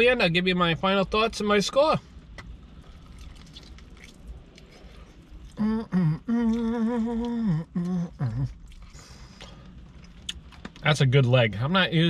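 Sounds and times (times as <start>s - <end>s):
faint chewing: 2.4s - 5.7s, 6.4s - 10.8s
man humming with mouth full: 5.6s - 8.6s.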